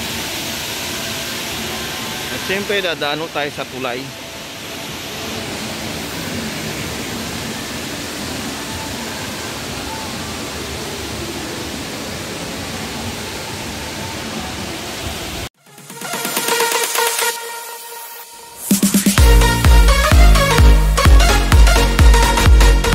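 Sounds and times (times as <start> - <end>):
steady rushing noise: 0.0 - 15.5.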